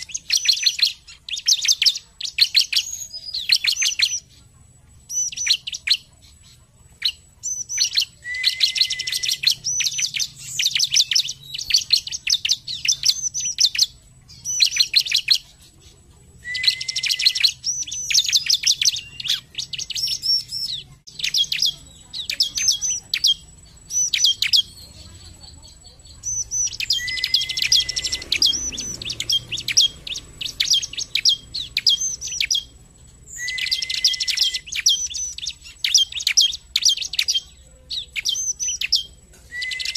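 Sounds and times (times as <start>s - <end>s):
bird rapid high chirping song: 0.0s - 39.9s
bird low flat whistle: 8.2s - 9.5s, 16.4s - 17.5s, 33.4s - 35.0s, 39.5s - 39.9s.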